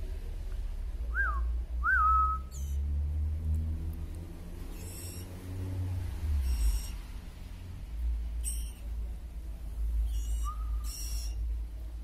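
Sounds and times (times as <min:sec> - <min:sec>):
whistled notes: 0:01.1 - 0:02.8, 0:10.1 - 0:11.4
nestlings begging cheeps: 0:02.2 - 0:02.9, 0:04.5 - 0:12.0.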